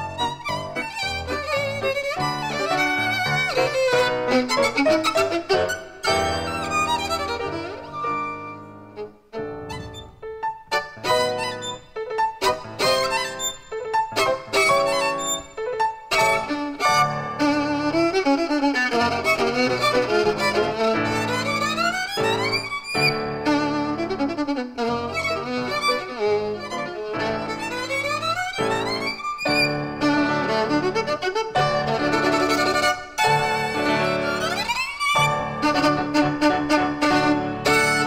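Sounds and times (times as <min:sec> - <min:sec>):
fast violin playing: 0:00.0 - 0:38.0
piano accompaniment: 0:00.0 - 0:38.0.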